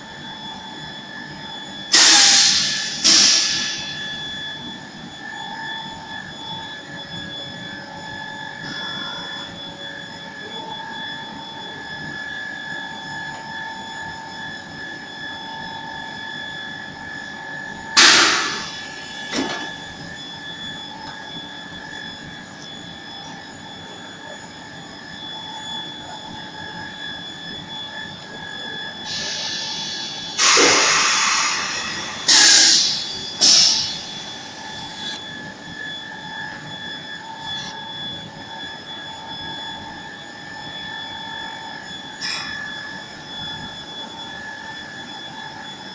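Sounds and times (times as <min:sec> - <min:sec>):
press machine whining: 0:18.0 - 0:24.4, 0:25.2 - 0:45.6
loud sudden hisses: 0:30.4 - 0:33.8.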